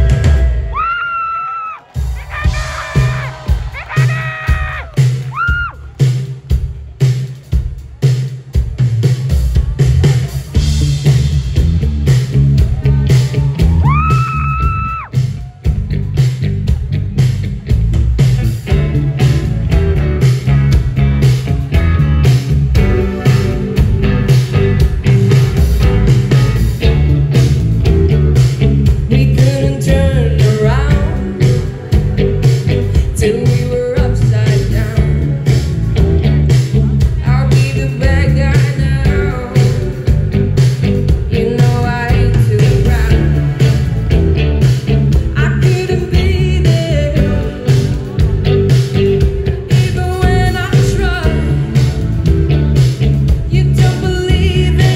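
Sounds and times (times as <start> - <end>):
person singing: 0.0 - 5.8, 28.9 - 44.0, 44.6 - 52.2, 52.8 - 54.9
live rock band: 0.0 - 54.9.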